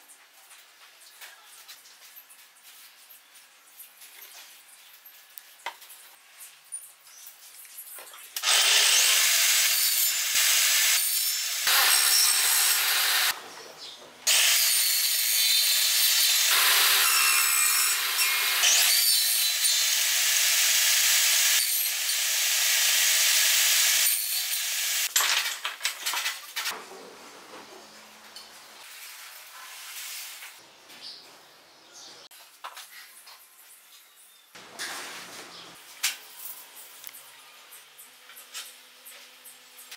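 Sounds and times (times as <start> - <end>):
table saw cutting wood: 8.4 - 13.4, 14.3 - 25.1.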